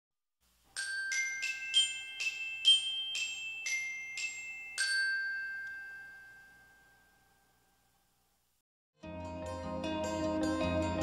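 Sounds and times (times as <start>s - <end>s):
chimes playing melody: 0.7s - 7.8s.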